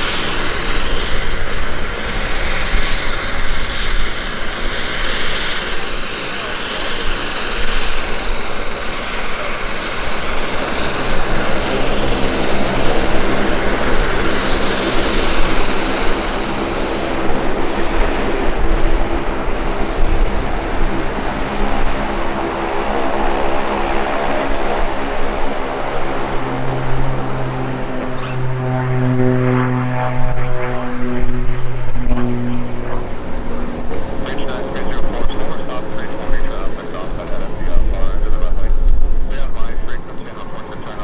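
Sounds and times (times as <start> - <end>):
jet engines roaring: 0.0 - 41.0
steady droning hum: 0.0 - 41.0.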